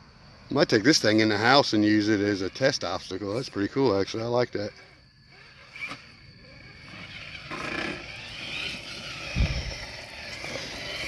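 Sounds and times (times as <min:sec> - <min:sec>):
electric motor whining: 0:04.6 - 0:11.0.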